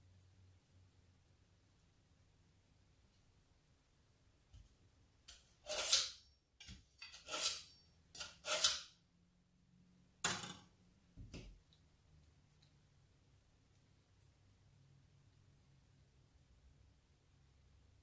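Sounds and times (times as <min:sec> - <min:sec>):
knife scraping through sharpener: 0:05.3 - 0:09.0.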